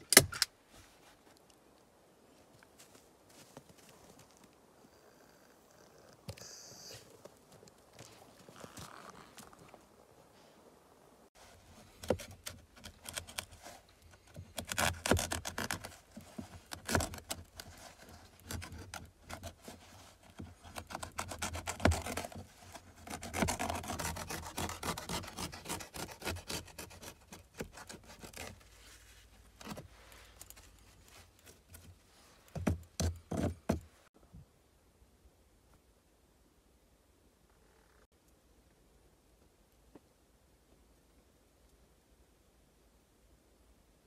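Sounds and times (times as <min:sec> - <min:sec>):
knife sawing through burlap: 0:16.7 - 0:28.6.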